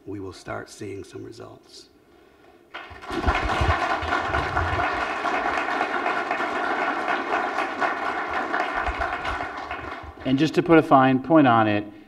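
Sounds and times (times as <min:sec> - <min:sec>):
audience applauding: 0:02.7 - 0:10.5.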